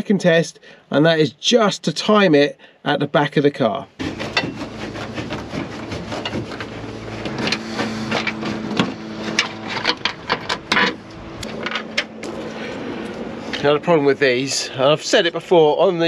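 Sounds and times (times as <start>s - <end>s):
steady hum: 4.0s - 16.0s.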